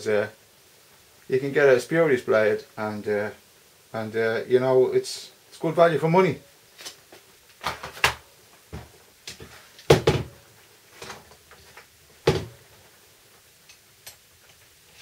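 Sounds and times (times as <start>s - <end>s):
knocks on a wooden workbench: 9.9s - 10.3s, 12.3s - 12.6s.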